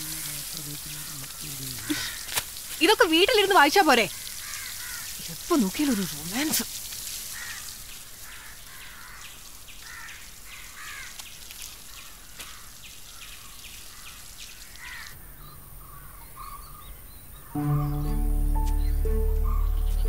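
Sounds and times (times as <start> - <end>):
garden hose spraying water: 0.0 - 15.2, 17.6 - 20.0
crows cawing: 0.8 - 2.4, 4.1 - 5.2, 7.3 - 11.2, 11.9 - 13.2, 14.7 - 15.2
faint bird chirps: 14.5 - 20.0
music: 17.6 - 20.0.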